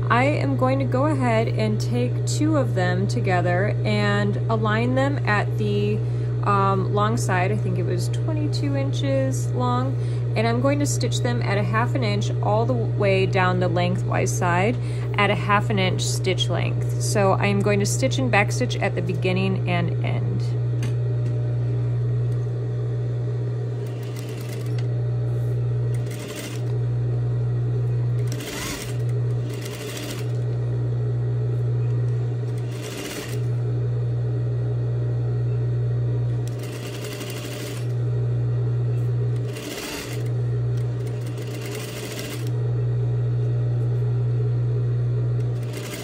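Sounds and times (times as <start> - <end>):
industrial sewing machine stitching: 23.8 - 24.9, 25.9 - 26.8, 28.2 - 30.4, 32.5 - 33.5, 36.4 - 38.0, 39.4 - 42.6, 45.4 - 46.0.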